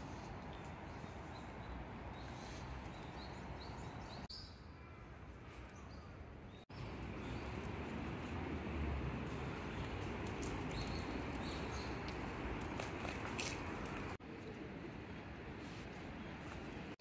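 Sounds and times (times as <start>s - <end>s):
small birds chirping: 0.0s - 4.7s, 9.5s - 12.4s.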